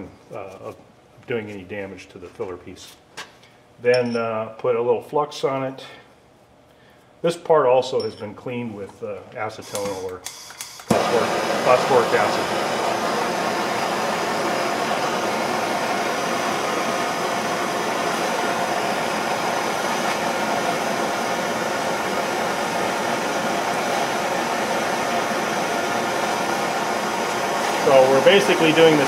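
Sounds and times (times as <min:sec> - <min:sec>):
gas torch hissing: 0:09.7 - 0:29.0.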